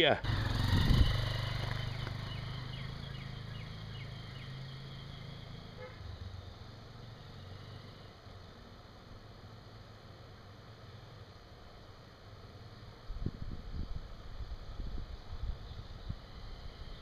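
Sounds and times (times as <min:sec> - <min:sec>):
motorcycle engine pulling away: 0:00.2 - 0:08.2.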